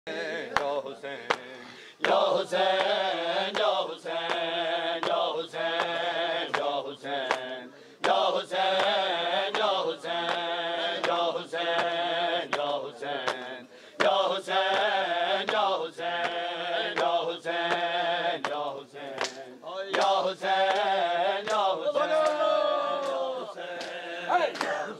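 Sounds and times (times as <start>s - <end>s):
men chanting a lament: 0.1s - 24.9s
hand slaps on chest: 17.0s - 22.4s.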